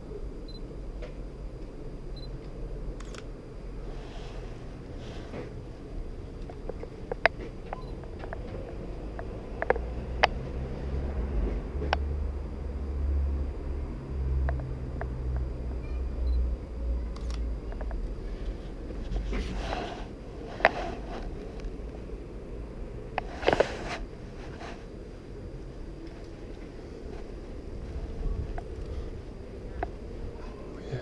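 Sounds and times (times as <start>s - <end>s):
steady low rumble: 0.0s - 31.0s.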